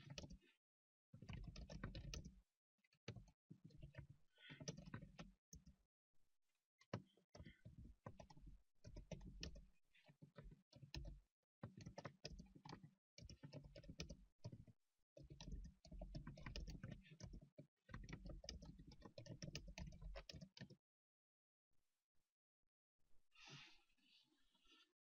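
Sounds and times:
keyboard typing: 0:01.3 - 0:02.3, 0:15.3 - 0:20.8.

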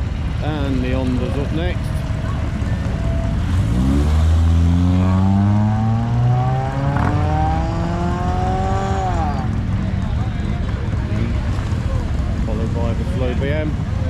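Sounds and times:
car engine revving and accelerating: 0:03.2 - 0:10.0.

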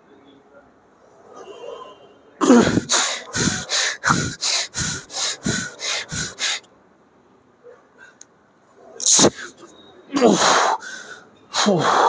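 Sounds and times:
man breathing hard through mouth: 0:02.4 - 0:06.7, 0:10.2 - 0:12.0.

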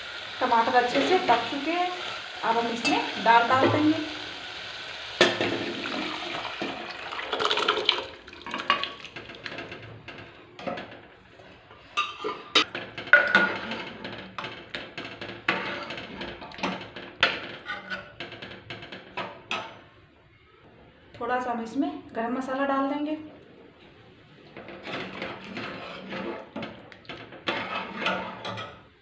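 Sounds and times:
lentils splashing into pot: 0:00.4 - 0:09.6
ladle scraping and clinking pot: 0:10.6 - 0:18.2, 0:23.8 - 0:29.0.

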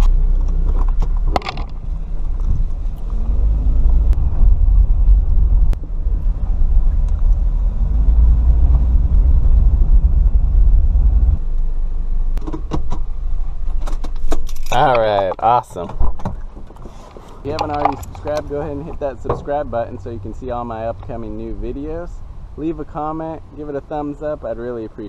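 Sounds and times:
car engine from inside cabin: 0:00.0 - 0:13.6.

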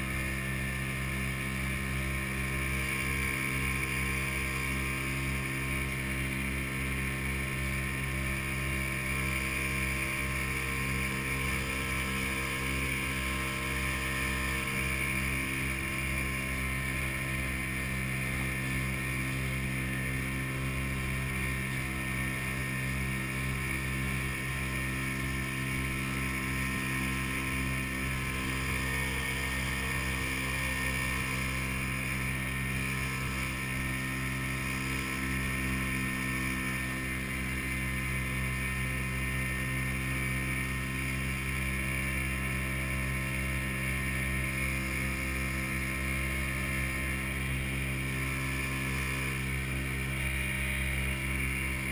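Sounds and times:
outboard motor running: 0:00.0 - 0:51.9.

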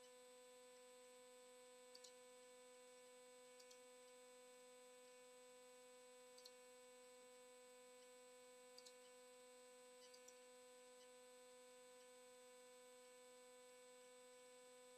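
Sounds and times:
faint electrical hum: 0:00.0 - 0:14.9
faint clicks: 0:01.9 - 0:02.2, 0:03.6 - 0:03.8, 0:06.4 - 0:06.6, 0:08.8 - 0:09.1, 0:10.0 - 0:10.4.

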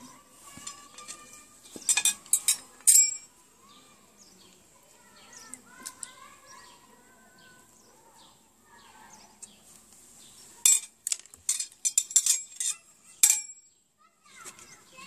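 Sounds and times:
faint birdsong: 0:00.0 - 0:15.0
metal clinks: 0:00.6 - 0:03.3, 0:11.5 - 0:13.7.

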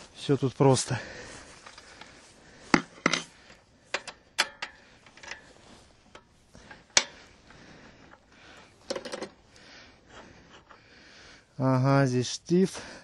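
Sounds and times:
metal parts and tools clinking: 0:02.7 - 0:07.3, 0:08.8 - 0:09.4.

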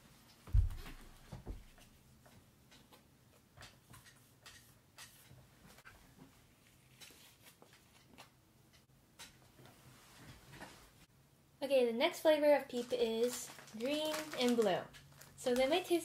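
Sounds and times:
paper rustling: 0:12.7 - 0:16.0.

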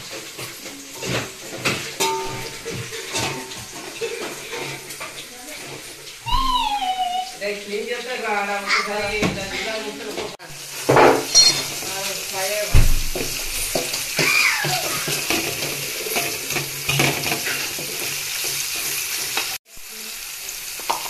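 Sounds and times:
onions sizzling in hot oil: 0:00.0 - 0:21.0
metal ladle scraping a pot: 0:00.3 - 0:05.9, 0:14.8 - 0:19.1.

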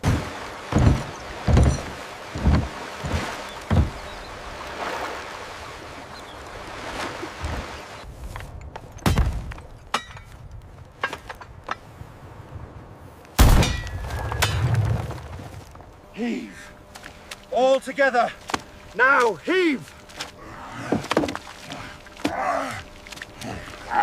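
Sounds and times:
cannon blast: 0:13.4 - 0:15.0.

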